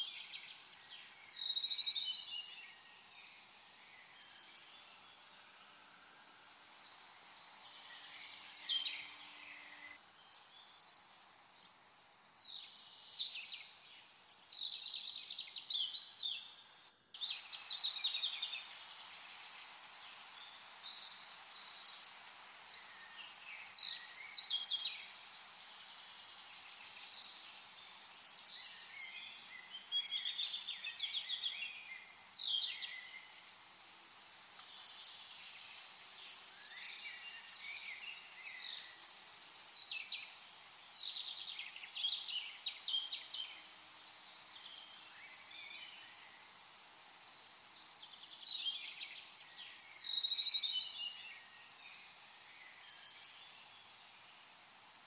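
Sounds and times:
small birds chirping: 0.0 - 55.0
steady background hiss: 0.0 - 55.0.

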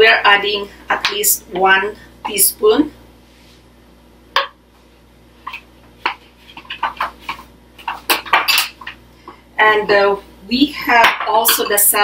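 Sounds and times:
kitchenware clicks and knocks: 6.6 - 9.0.

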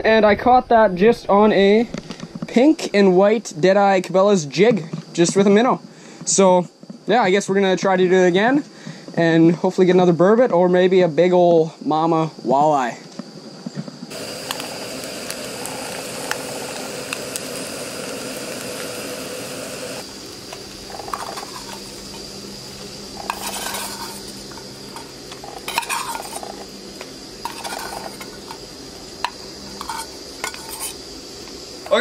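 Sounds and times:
fish sizzling in a pot: 14.1 - 32.0
metal utensil scraping a pot: 20.9 - 21.9, 23.2 - 26.7, 27.4 - 28.6, 29.2 - 31.0.

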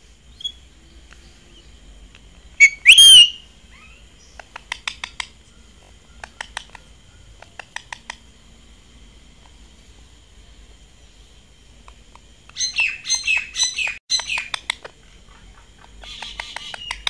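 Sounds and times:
shrill whistled screech: 2.6 - 3.4
sharp parakeet chirps: 2.6 - 5.4, 12.5 - 14.8, 16.0 - 17.0.

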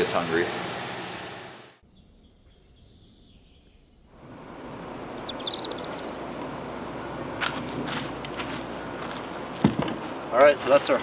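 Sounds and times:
outdoor background noise: 0.0 - 11.0
small bird chirping trill: 1.8 - 6.2.

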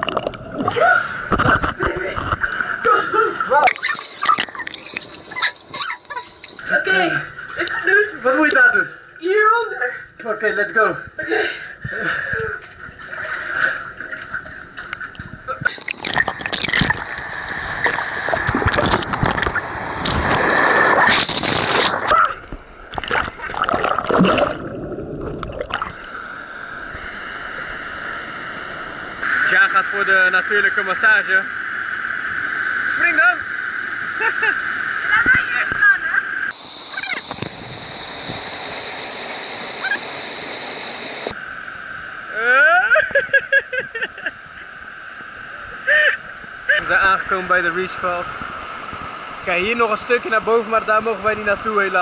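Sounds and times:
water rushing and splashing: 3.4 - 6.6, 15.7 - 22.2, 35.1 - 41.4
waterfall rushing over rock: 36.5 - 41.4.

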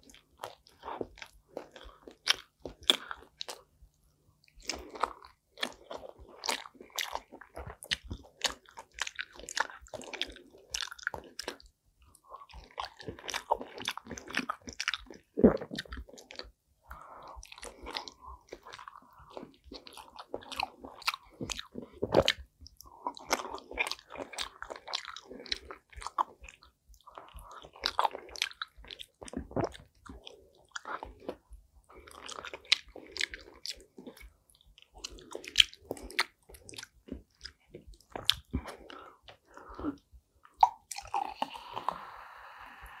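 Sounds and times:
close chewing and biting: 0.0 - 3.8, 4.4 - 42.1
wet mouth clicks and smacks: 40.4 - 42.0.

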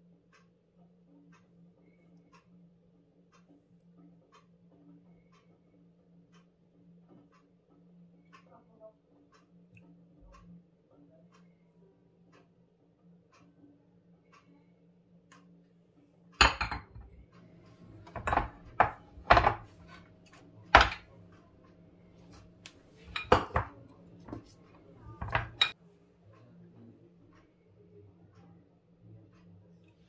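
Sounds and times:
ceramic tableware clinking: 16.4 - 17.2, 18.0 - 20.0, 20.7 - 21.1, 23.0 - 25.8.

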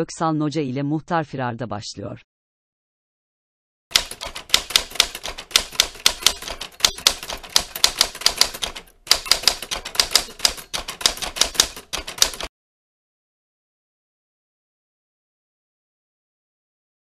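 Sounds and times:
rapid sharp clicks: 3.9 - 12.5.

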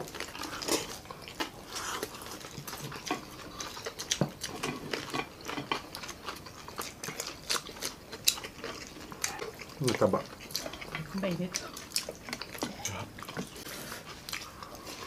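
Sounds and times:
people chewing crunchy food: 0.0 - 15.0.

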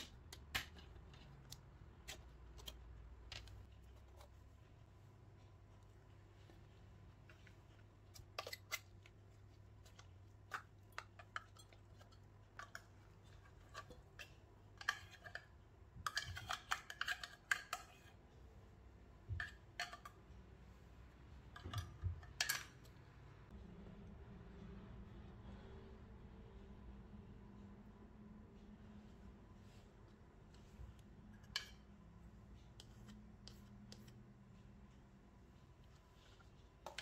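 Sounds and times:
tin clicking and scraping in metal bowl: 9.9 - 18.1.

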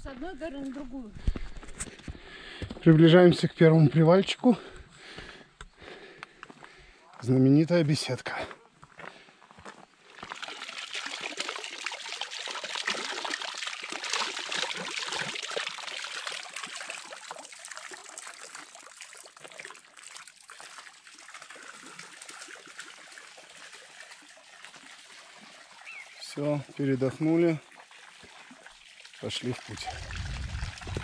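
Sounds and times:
stream trickling and splashing: 9.2 - 31.0.

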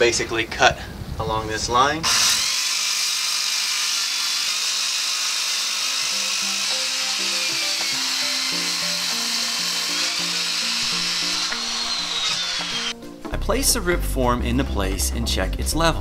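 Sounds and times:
circular saw cutting wood: 2.0 - 13.0
background music: 5.7 - 16.0.

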